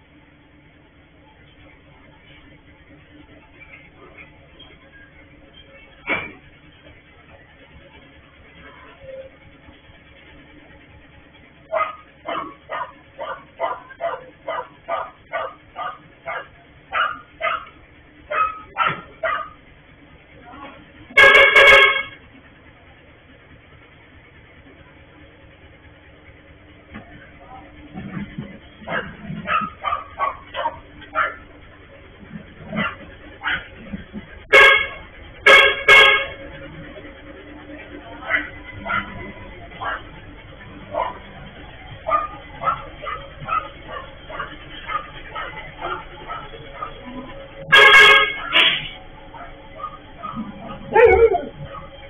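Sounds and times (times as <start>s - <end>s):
dog barking: 11.7s - 19.6s, 28.9s - 31.5s, 32.7s - 33.8s, 38.2s - 40.2s, 40.9s - 41.3s, 42.0s - 47.1s, 47.8s - 48.7s, 49.3s - 52.0s
vehicle horn honks: 21.1s - 22.3s, 34.4s - 36.7s, 47.6s - 49.1s.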